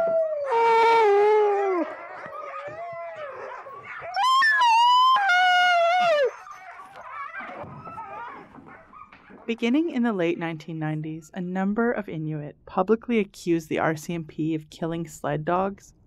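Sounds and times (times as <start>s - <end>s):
dog whining: 0.0s - 9.1s
dogs howling: 0.0s - 9.4s.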